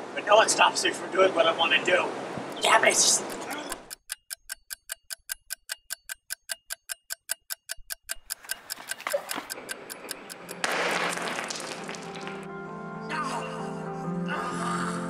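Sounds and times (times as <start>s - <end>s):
rapid watch ticking: 2.5s - 10.7s.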